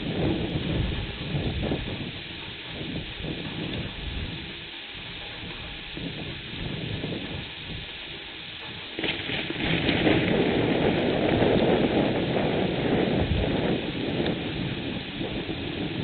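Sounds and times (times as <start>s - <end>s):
steady rain falling: 0.0s - 16.0s
rolling thunder: 9.0s - 16.0s.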